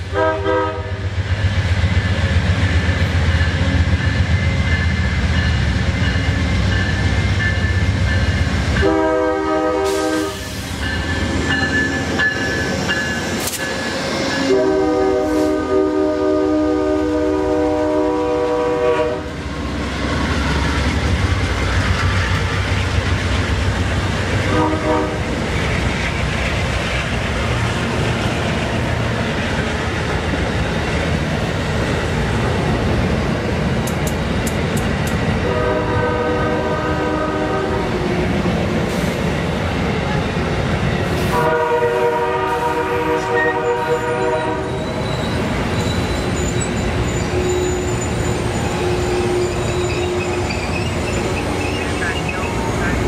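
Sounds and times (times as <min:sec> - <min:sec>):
train horn blasts: 0:00.0 - 0:01.1, 0:08.8 - 0:10.7, 0:14.3 - 0:19.4, 0:24.4 - 0:25.3, 0:35.4 - 0:38.0, 0:41.2 - 0:45.0
train wheels rumbling on rail: 0:00.0 - 0:53.0.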